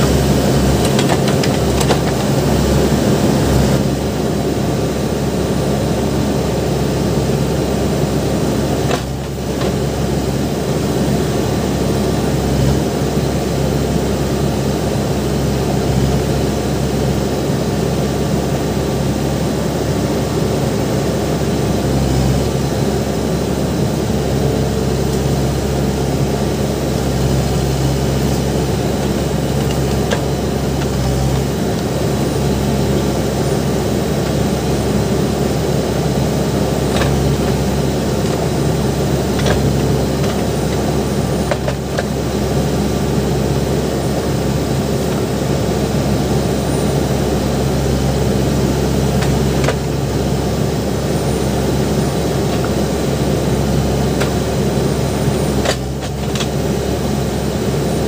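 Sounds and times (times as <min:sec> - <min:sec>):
diesel engine running under load: 0:00.0 - 0:58.0.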